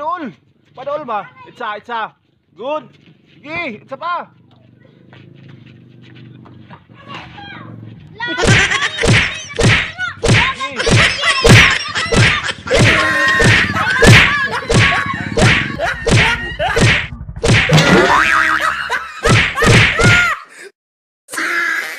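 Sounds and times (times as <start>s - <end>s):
punch and slap hits: 8.4s - 18.1s, 19.2s - 20.2s.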